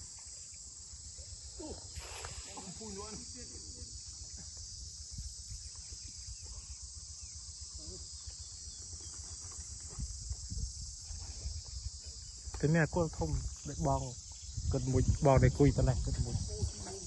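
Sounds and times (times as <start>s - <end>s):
insect chorus drone: 0.0s - 17.0s
wind rumble on microphone: 9.5s - 17.0s.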